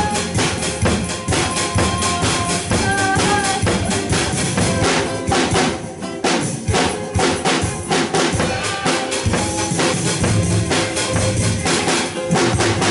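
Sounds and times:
drum kit playing steady beat: 0:00.0 - 0:12.9
melodic music: 0:00.0 - 0:12.9.

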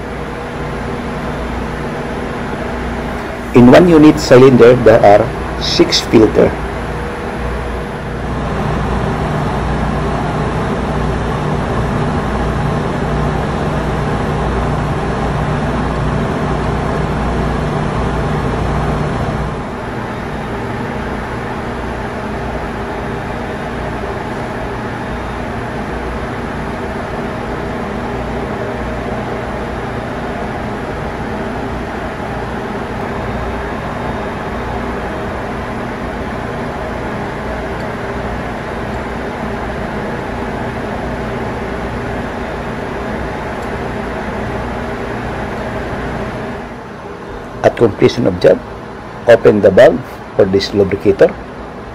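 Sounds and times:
engine-room machinery drone: 0:00.0 - 0:51.9
low machinery hum: 0:00.0 - 0:51.9.

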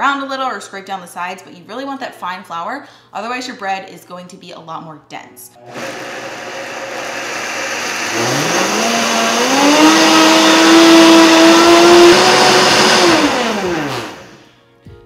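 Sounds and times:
blender motor grinding: 0:05.6 - 0:14.4.

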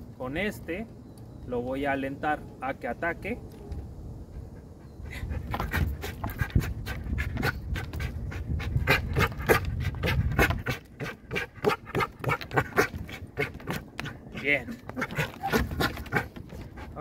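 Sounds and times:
dog panting hard: 0:04.3 - 0:17.0.

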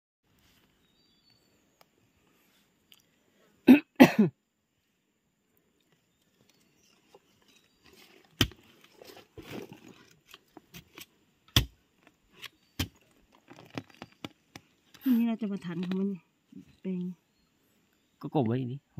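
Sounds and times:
digging rod scraping soil and leaves: 0:06.6 - 0:11.1
sharp knocks of rod on stones: 0:11.5 - 0:11.8.

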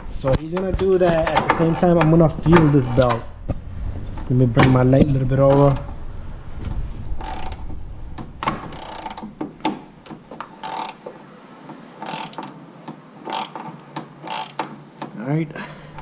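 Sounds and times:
ratchet wrench clicking: 0:07.2 - 0:07.7, 0:08.4 - 0:09.2, 0:10.6 - 0:11.0, 0:12.0 - 0:12.6, 0:13.2 - 0:14.8.

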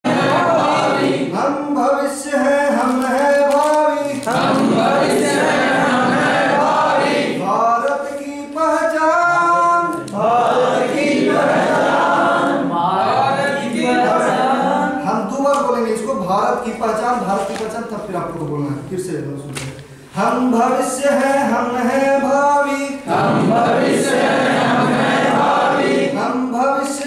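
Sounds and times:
men singing in unison: 0:04.2 - 0:15.0.

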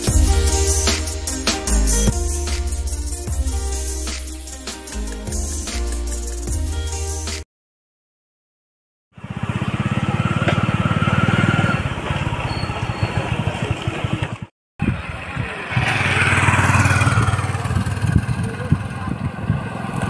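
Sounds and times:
music: 0:00.0 - 0:07.4
motorcycle engine running: 0:09.2 - 0:20.0.

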